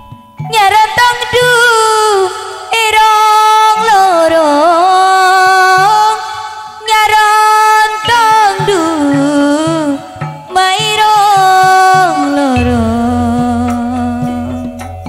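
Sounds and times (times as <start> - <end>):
woman singing: 0.4 - 14.9
short low beats: 12.6 - 14.9.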